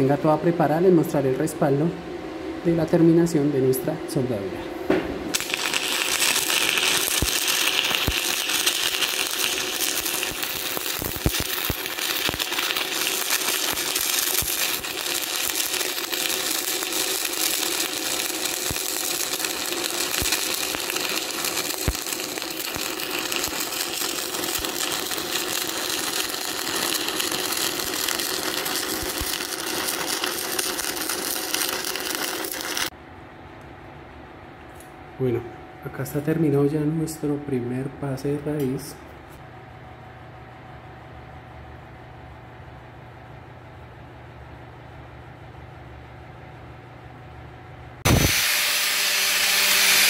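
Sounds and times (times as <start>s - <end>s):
welding arc crackling and popping: 5.3s - 32.9s, 48.0s - 50.0s.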